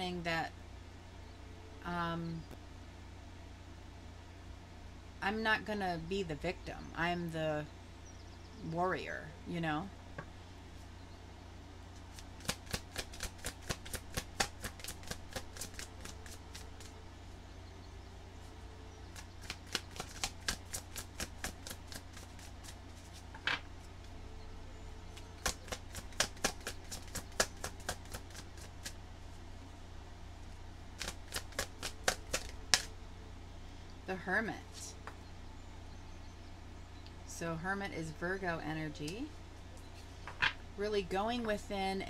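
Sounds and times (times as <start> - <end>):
cards shuffling with sharp clicks: 12.1 - 16.9, 19.2 - 23.6, 25.4 - 29.0, 31.0 - 32.9.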